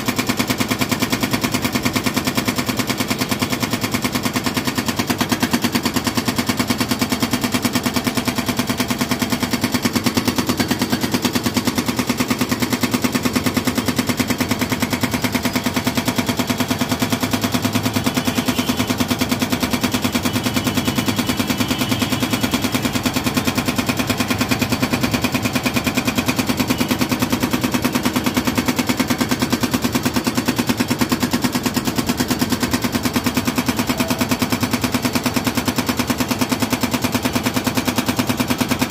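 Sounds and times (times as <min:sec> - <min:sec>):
hydraulic breaker hammering concrete: 0:00.0 - 0:38.9.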